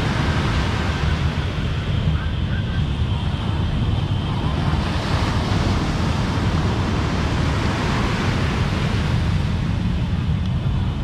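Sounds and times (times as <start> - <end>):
wind rumbling on microphone: 0.0 - 11.0
surf breaking on beach: 4.4 - 9.9.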